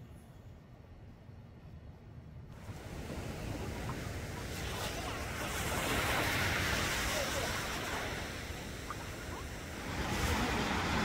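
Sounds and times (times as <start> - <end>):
small waves washing up a beach: 2.6 - 11.0.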